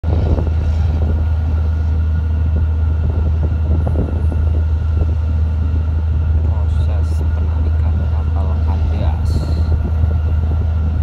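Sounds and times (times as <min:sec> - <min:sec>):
boat diesel engines droning: 0:00.0 - 0:11.0.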